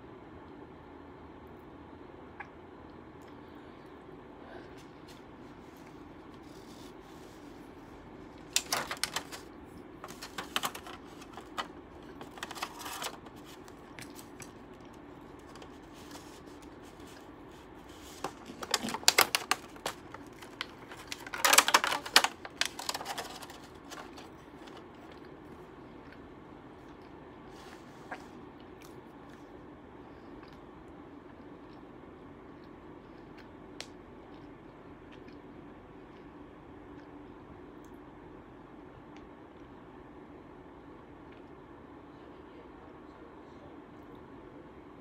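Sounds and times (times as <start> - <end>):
plastic container crackling clicks: 8.5 - 9.4, 18.1 - 24.3.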